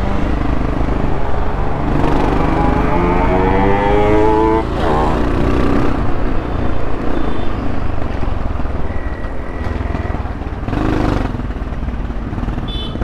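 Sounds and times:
motorcycle engine running: 0:08.3 - 0:13.0.

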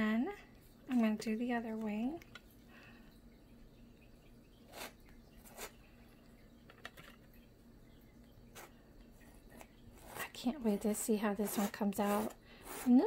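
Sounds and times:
palette knife scraping paint on canvas: 0:09.6 - 0:10.4, 0:11.2 - 0:13.0.

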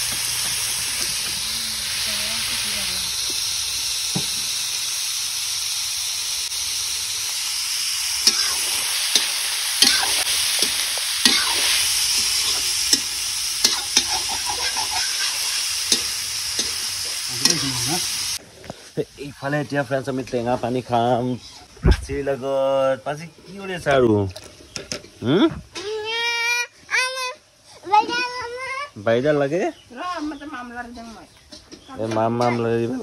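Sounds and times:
meat sizzling in hot oil: 0:00.0 - 0:25.3
metal spatula scraping wok: 0:08.2 - 0:18.4, 0:20.2 - 0:21.7.

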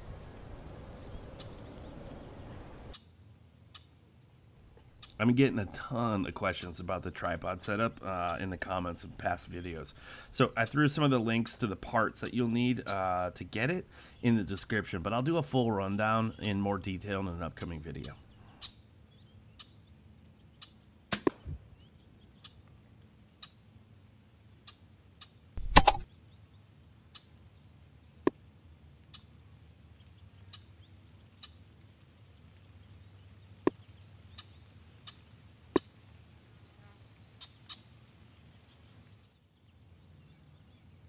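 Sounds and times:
birds chirping faintly: 0:00.0 - 0:41.0
air rifle firing: 0:21.1 - 0:21.4, 0:25.6 - 0:26.0
sharp clicks: 0:25.6 - 0:26.1.

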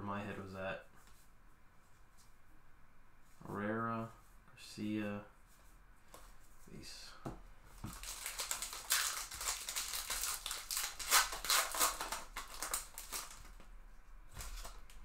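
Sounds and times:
foil wrapper tearing and crinkling: 0:07.9 - 0:13.6.

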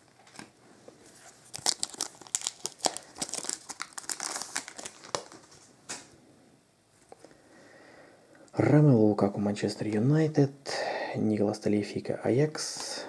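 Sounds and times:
foil wrapper tearing and crinkling: 0:01.4 - 0:05.6.

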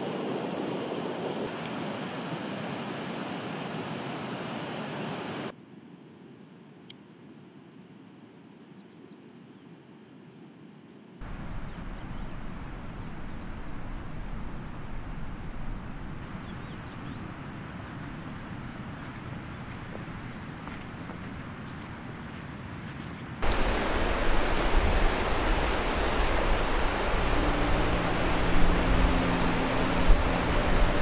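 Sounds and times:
steady rushing noise: 0:11.2 - 0:19.5, 0:23.4 - 0:31.0
wind buffeting microphone: 0:11.2 - 0:31.0.

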